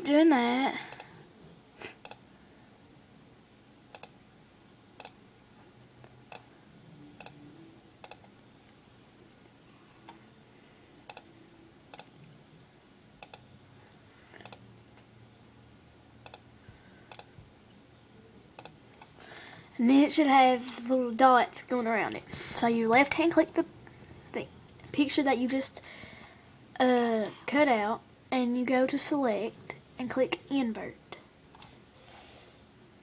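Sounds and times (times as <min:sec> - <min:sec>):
computer mouse clicking: 0:00.9 - 0:01.1, 0:02.0 - 0:02.2, 0:03.9 - 0:04.2, 0:07.2 - 0:07.4, 0:08.0 - 0:08.3, 0:11.1 - 0:12.2, 0:13.2 - 0:13.5, 0:14.4 - 0:14.6, 0:16.2 - 0:16.5, 0:17.1 - 0:17.3, 0:18.6 - 0:19.1.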